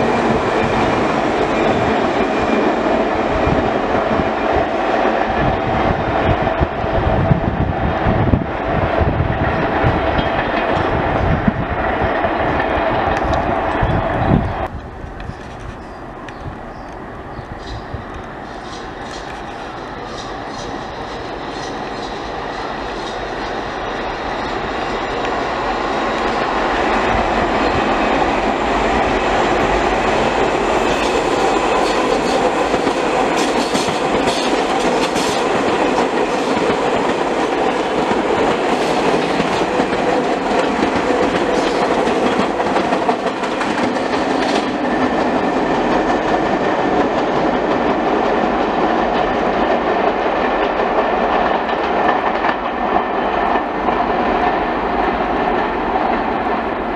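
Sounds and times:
subway train passing: 0.0s - 56.9s
steel wheels clattering over rail joints: 14.6s - 56.4s.

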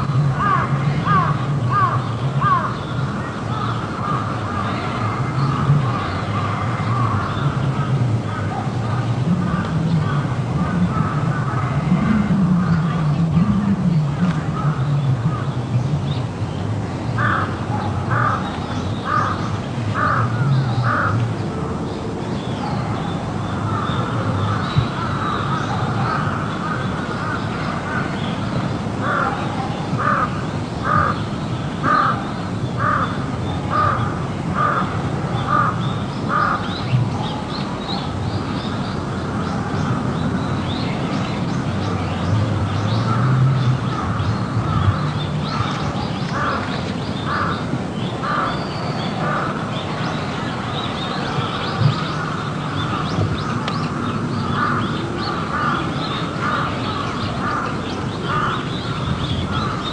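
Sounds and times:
crow cawing: 18.1s - 18.4s, 19.0s - 19.4s, 20.0s - 21.2s, 30.0s - 31.2s, 31.8s - 32.2s, 32.8s - 34.9s, 35.5s - 36.6s, 47.3s - 47.6s, 54.4s - 57.7s, 58.3s - 59.9s.

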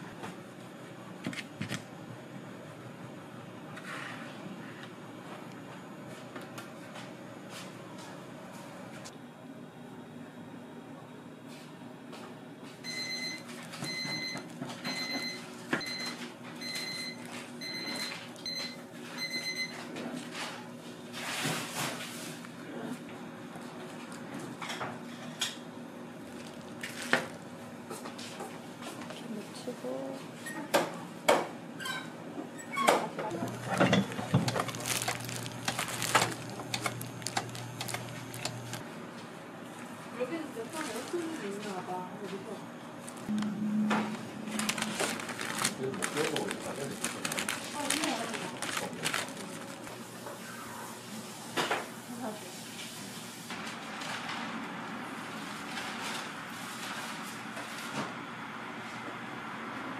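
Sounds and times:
whipped-cream dispenser humming: 33.2s - 38.8s
rustles of handling: 33.4s - 38.8s, 40.6s - 43.3s, 44.5s - 50.2s.

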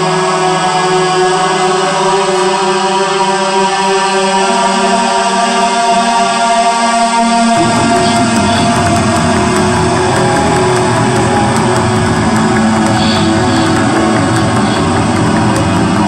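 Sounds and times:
electric guitar with band: 7.6s - 16.0s
heavy low part: 7.6s - 16.0s.

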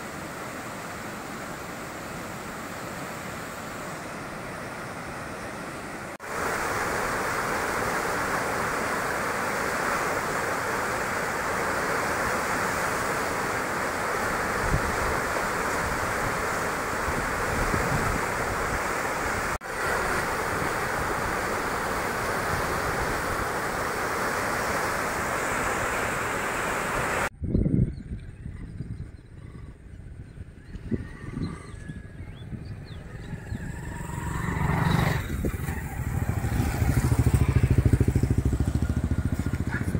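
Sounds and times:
water rushing over a weir: 0.0s - 27.3s
wind rumble on microphone: 14.3s - 24.9s, 27.1s - 39.9s.

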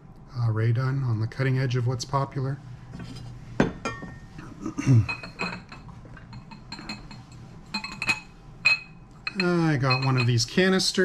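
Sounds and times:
ceramic pieces clinking: 5.0s - 10.4s.

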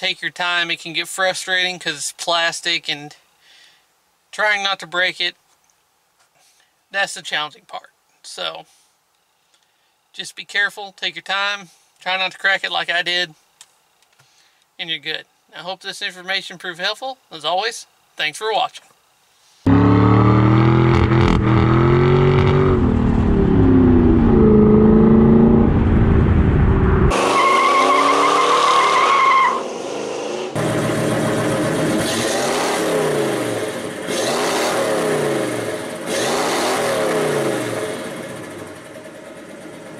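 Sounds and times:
car engine revving: 19.7s - 29.0s, 29.6s - 38.8s
tire squealing: 19.7s - 30.6s.

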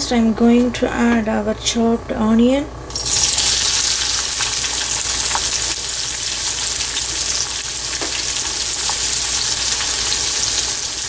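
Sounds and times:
onion sizzling in hot oil: 2.9s - 11.0s.

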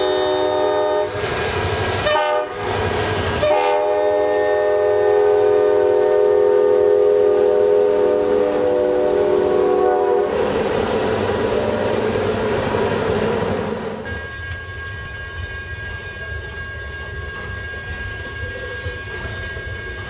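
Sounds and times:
locomotive air horn: 0.0s - 1.2s, 2.0s - 10.5s
locomotive engines working hard: 0.0s - 20.0s
crossing signal bell ringing: 14.0s - 20.0s.

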